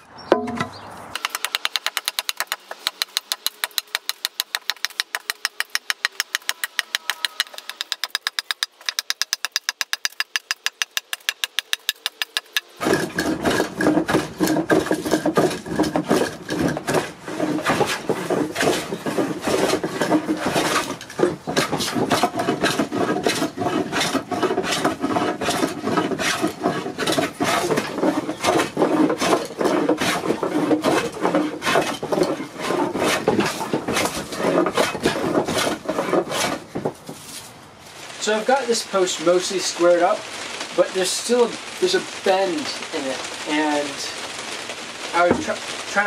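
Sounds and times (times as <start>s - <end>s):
hand plane shaving wood: 10.0s - 37.4s.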